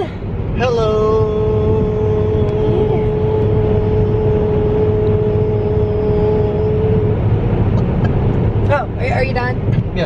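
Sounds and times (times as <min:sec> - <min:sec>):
car road noise: 0:00.0 - 0:10.0
man singing long note: 0:00.6 - 0:07.2.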